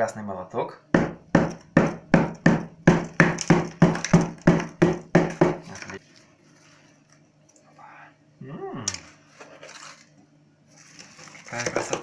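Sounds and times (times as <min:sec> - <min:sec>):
hammer cracking salt crust: 0:01.4 - 0:06.0.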